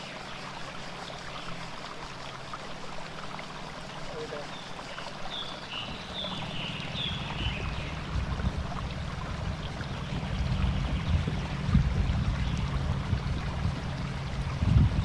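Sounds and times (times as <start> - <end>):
engine running low and slow: 0.0 - 15.0
water trickling: 0.0 - 15.0
birds chirping: 3.9 - 15.0.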